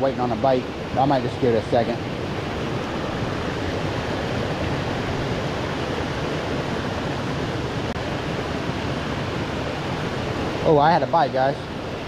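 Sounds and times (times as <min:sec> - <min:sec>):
stream water rushing over rocks: 0:00.0 - 0:12.0.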